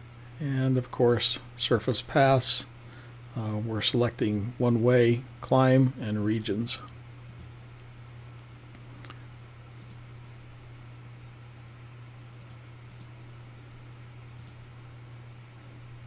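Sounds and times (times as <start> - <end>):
steady low hum: 0.0 - 16.0
computer mouse clicks: 7.3 - 7.5, 9.8 - 10.0, 12.4 - 13.1, 14.4 - 14.6.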